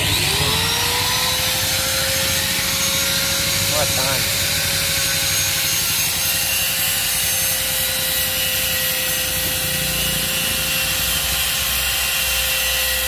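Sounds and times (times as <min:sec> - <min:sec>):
angle grinder cutting metal: 0:00.0 - 0:13.0.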